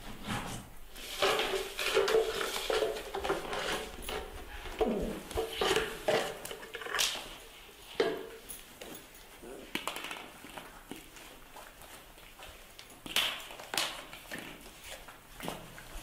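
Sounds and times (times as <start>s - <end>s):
scuffling on tile floor: 0.0s - 9.6s.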